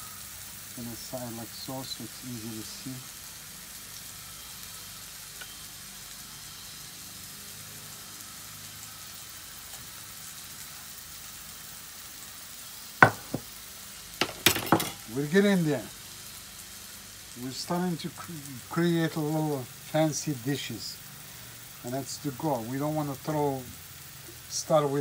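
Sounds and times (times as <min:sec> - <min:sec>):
mushrooms sizzling in skillet: 0:00.0 - 0:25.0
utensil clicking on pan: 0:14.2 - 0:15.0.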